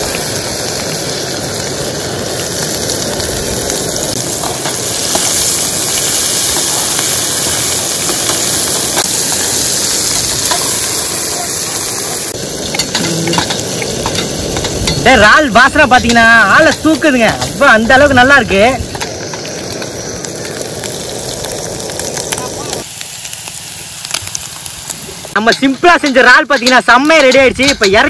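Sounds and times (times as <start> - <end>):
prawns sizzling in hot oil: 0.0 - 28.0
oil clicks and pops: 18.8 - 25.0.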